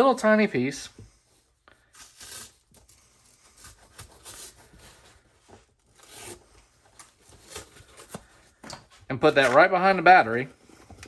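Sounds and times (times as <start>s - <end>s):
razor blade cutting foam: 1.8s - 4.8s, 5.9s - 6.6s.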